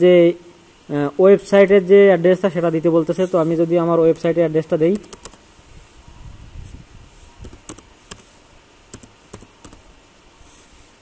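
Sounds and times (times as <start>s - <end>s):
keyboard typing: 4.6s - 5.4s, 7.4s - 8.3s, 8.9s - 9.9s.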